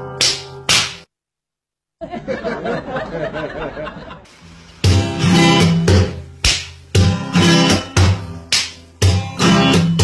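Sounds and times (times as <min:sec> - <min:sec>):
acoustic guitar strumming chords: 0:04.8 - 0:10.0.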